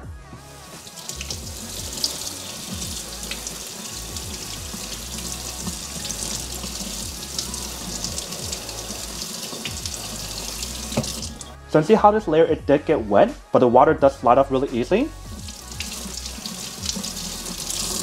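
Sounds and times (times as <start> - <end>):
faucet water splashing: 0.6 - 11.6, 15.4 - 18.0
water spattering into metal sink: 7.9 - 11.4.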